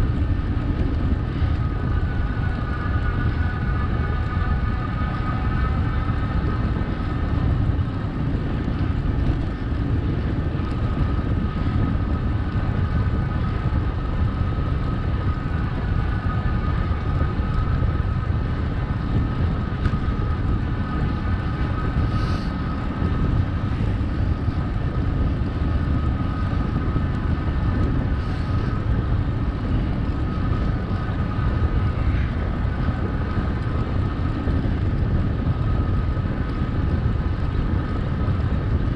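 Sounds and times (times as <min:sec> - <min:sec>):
thin steady whine: 0:00.0 - 0:38.9
wind buffeting microphone: 0:00.0 - 0:38.9.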